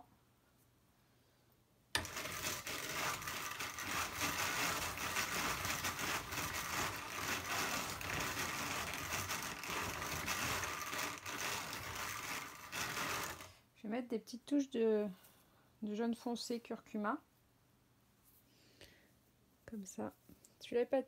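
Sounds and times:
hand-cranked drum carder turning: 2.0s - 13.5s.

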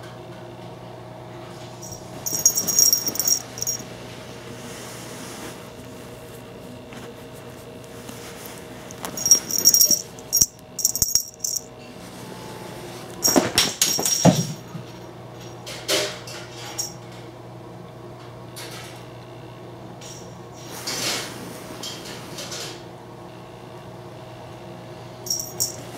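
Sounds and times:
cat toy jingling: 1.8s - 3.8s, 9.1s - 11.7s
toy clattering across floor: 1.8s - 3.8s, 8.9s - 11.7s.

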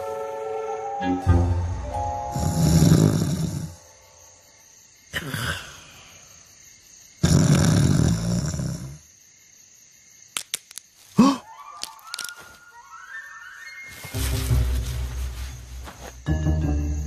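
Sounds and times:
man snoring: 2.3s - 3.8s, 7.2s - 9.0s.

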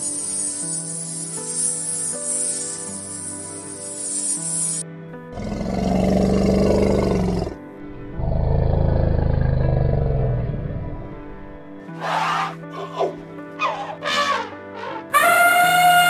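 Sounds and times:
soft background music: 0.0s - 16.0s
elephant roaring: 5.3s - 11.4s.

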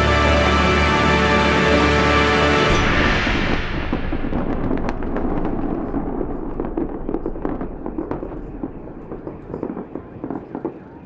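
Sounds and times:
fireworks crackling and popping: 2.6s - 11.0s
low rumble: 2.7s - 10.1s.

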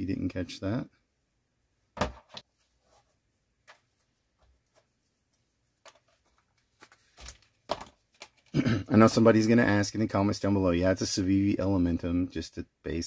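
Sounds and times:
items knocking on plastic mat: 2.0s - 2.4s.

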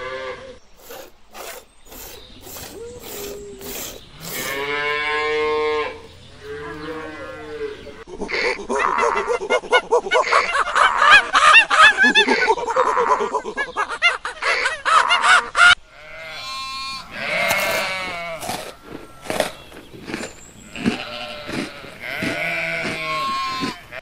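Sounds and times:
sheep bleating: 2.7s - 9.1s, 15.9s - 19.8s, 20.6s - 24.0s.

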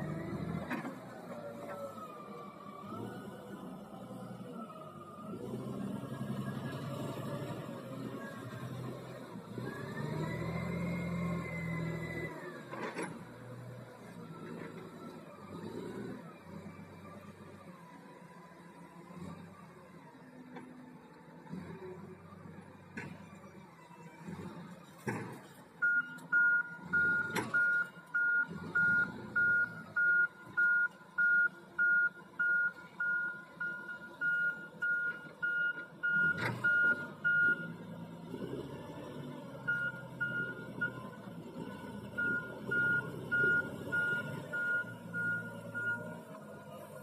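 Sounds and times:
reversing alarm beeping: 25.8s - 37.8s, 39.6s - 41.0s, 42.2s - 46.2s.

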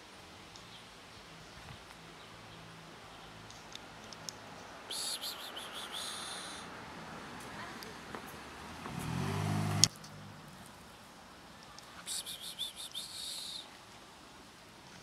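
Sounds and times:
small bird chirping: 4.6s - 6.6s, 11.6s - 13.8s.

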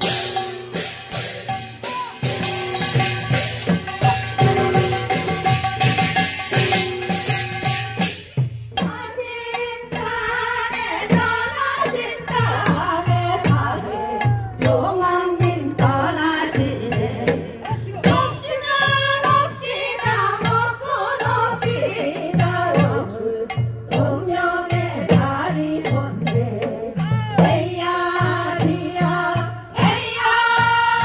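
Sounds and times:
drum beating steadily: 0.0s - 31.0s
women singing folk song: 8.8s - 31.0s.

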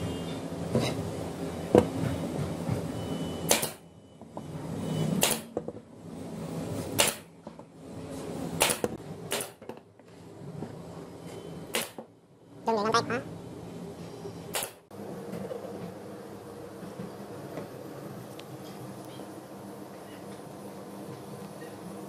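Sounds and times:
steady background hum: 0.0s - 22.0s
pneumatic nailer firing: 3.5s - 3.8s, 5.2s - 5.6s, 6.9s - 7.3s, 8.6s - 9.8s, 11.7s - 12.1s, 14.5s - 14.9s.

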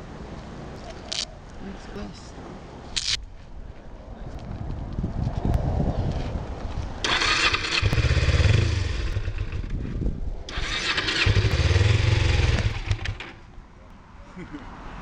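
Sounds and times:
motorcycle engine starting and stalling: 7.0s - 13.5s.

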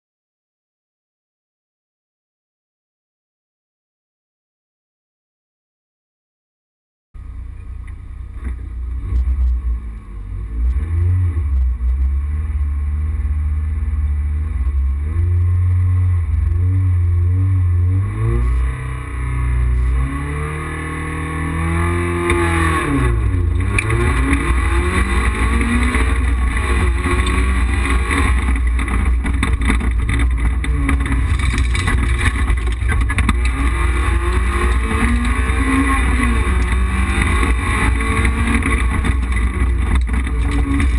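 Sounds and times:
rally car engine revving: 7.2s - 40.9s.

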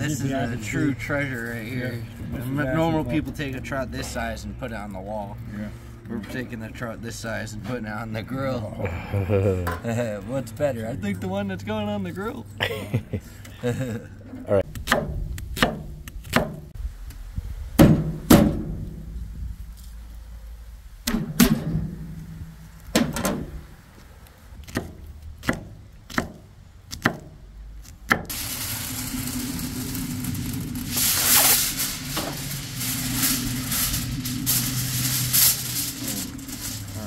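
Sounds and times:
knife chopping on wooden board: 24.6s - 27.4s
aluminum foil crinkling: 28.3s - 37.0s.

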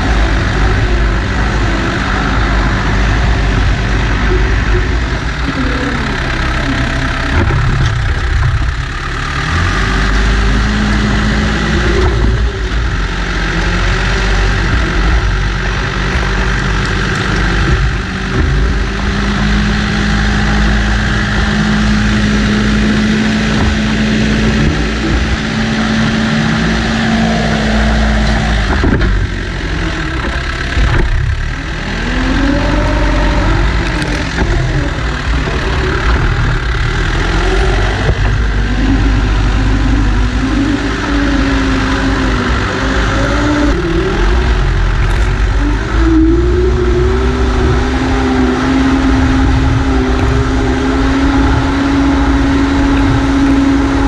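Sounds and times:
diesel engine droning under load: 0.0s - 54.0s
loader bucket pushing dirt: 0.0s - 54.0s.

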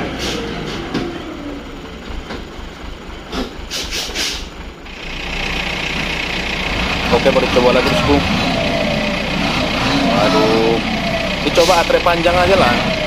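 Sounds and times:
truck knocks and clanks: 0.0s - 8.4s
diesel truck engine running low: 0.0s - 13.0s.

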